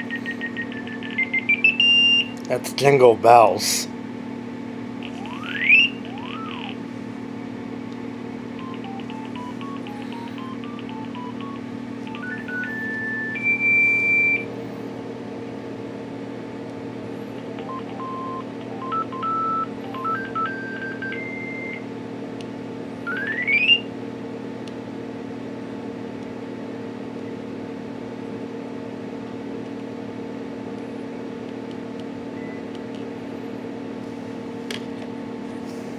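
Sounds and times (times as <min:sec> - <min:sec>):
phone beep-tone ringtone notes: 0:00.0 - 0:02.3, 0:05.0 - 0:06.8, 0:08.6 - 0:14.5, 0:17.6 - 0:21.8, 0:23.1 - 0:23.8
steady low hum: 0:00.0 - 0:35.9.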